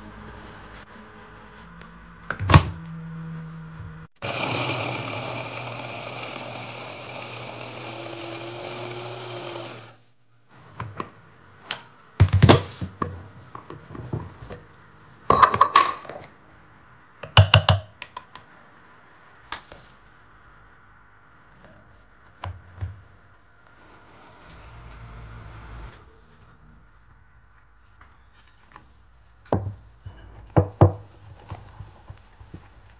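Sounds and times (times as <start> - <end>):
electric food chopper running: 4.2 - 10.0.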